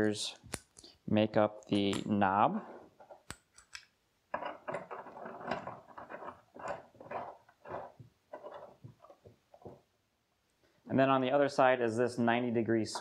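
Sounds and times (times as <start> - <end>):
threaded pipe fittings scraping: 3.0 - 9.8.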